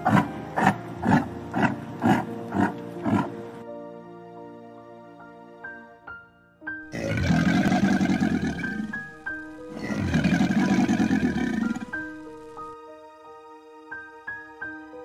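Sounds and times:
crocodile roaring: 0.0 - 3.4, 6.9 - 9.1, 9.7 - 12.4
soft background piano music: 0.0 - 15.0.

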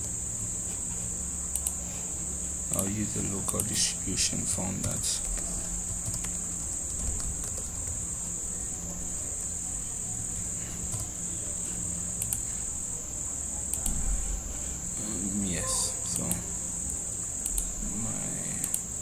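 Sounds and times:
high-pitched whine: 0.0 - 19.0
low hum: 0.0 - 19.0
keyboard and mouse clicks: 1.5 - 1.8, 4.8 - 7.9, 12.2 - 12.5, 17.4 - 17.7, 18.6 - 18.9.

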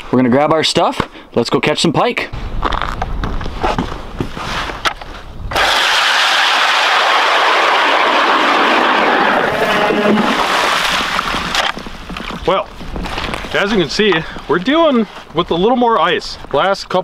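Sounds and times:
electric ice auger drilling: 5.5 - 11.7
blades grinding through ice: 5.5 - 12.3.

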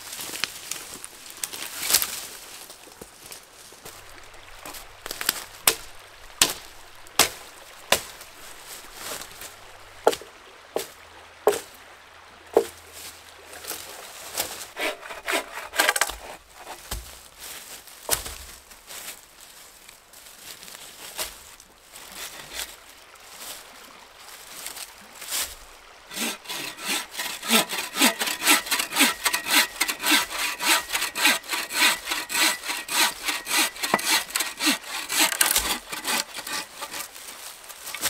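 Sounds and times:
leaf litter crunching: 35.6 - 38.0.

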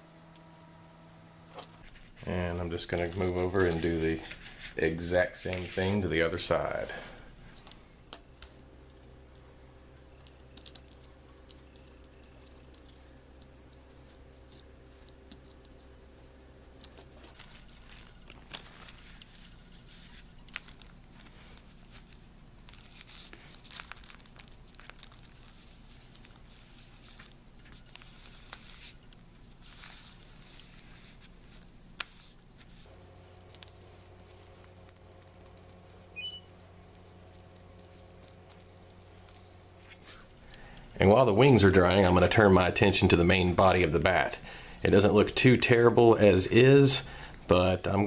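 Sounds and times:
faint steady hum: 0.0 - 48.0
plastic bag crinkling: 17.0 - 28.6, 32.9 - 40.8.

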